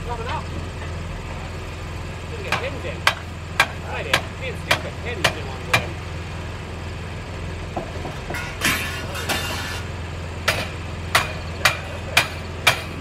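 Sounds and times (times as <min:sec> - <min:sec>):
engine idling: 0:00.0 - 0:13.0
rasping scrapes: 0:08.6 - 0:09.9.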